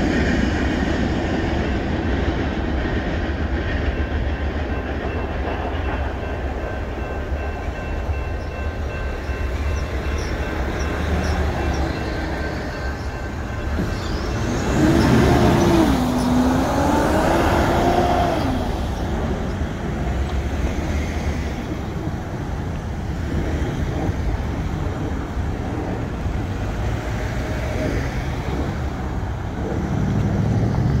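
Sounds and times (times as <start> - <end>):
vehicles driving past: 13.0 - 31.0
vehicle engine passing loudly: 14.4 - 19.4, 26.7 - 31.0.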